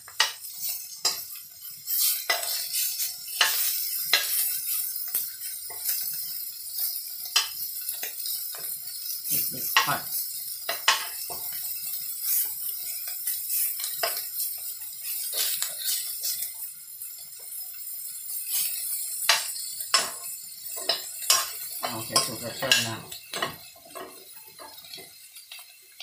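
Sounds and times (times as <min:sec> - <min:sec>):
food sizzling: 0:00.0 - 0:26.0
metal spoon scraping a wok: 0:00.1 - 0:11.6, 0:12.2 - 0:16.6.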